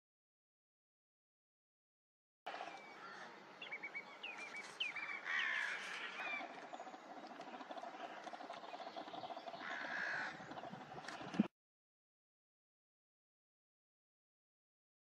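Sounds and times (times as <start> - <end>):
birds chirping: 2.5 - 11.5
faint outdoor noise: 2.5 - 11.5.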